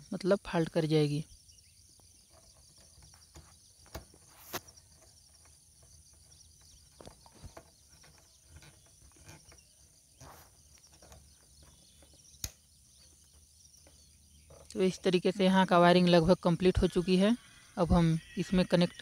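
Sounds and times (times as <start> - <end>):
high-pitched background hiss: 0.0 - 7.6.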